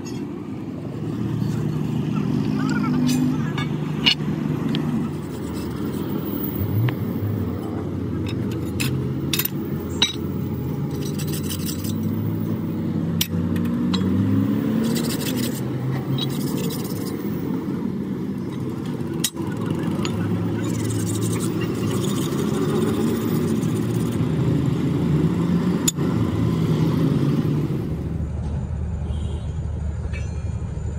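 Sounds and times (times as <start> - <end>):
engine running: 0.0 - 30.9
blade scraping rust off steel: 2.9 - 7.2, 8.3 - 12.6, 13.2 - 17.3, 19.2 - 24.2
sharp metal clicks: 8.2 - 10.3.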